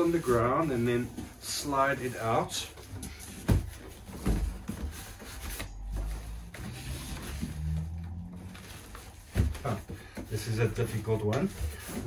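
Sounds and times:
box scraping and rumbling: 0:00.0 - 0:12.0.

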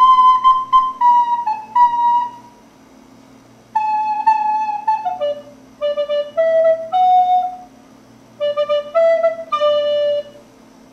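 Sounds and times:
recorder playing slow melody: 0:00.0 - 0:02.6, 0:03.7 - 0:07.7, 0:08.4 - 0:10.5.

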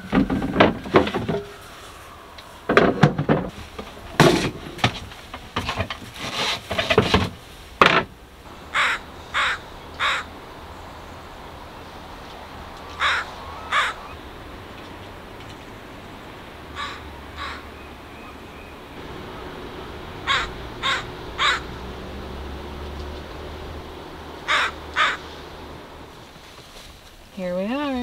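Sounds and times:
crow cawing: 0:08.7 - 0:10.3, 0:13.0 - 0:14.2, 0:16.7 - 0:17.7, 0:20.2 - 0:21.8, 0:24.4 - 0:25.4.

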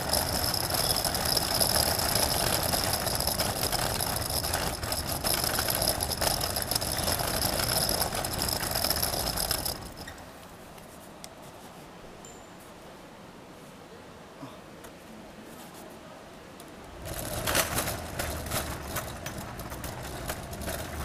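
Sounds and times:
rattle: 0:00.0 - 0:10.3, 0:17.0 - 0:21.0.

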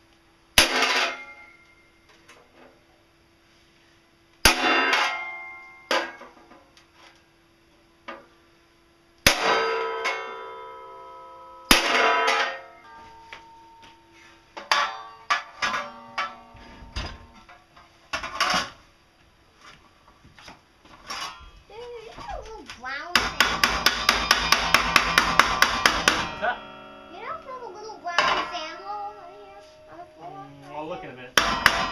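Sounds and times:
hammer on steel sheet: 0:09.3 - 0:14.0, 0:23.2 - 0:27.2, 0:31.3 - 0:31.9.

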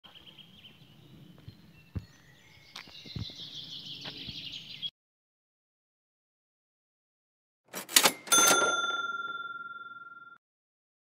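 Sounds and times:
birds chirping: 0:00.0 - 0:04.9
high trilling bird chorus: 0:00.1 - 0:04.9.

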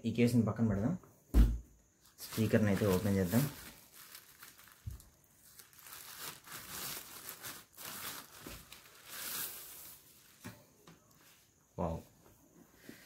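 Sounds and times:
packaging tearing: 0:02.2 - 0:10.0
packaging crinkling: 0:02.2 - 0:10.4.

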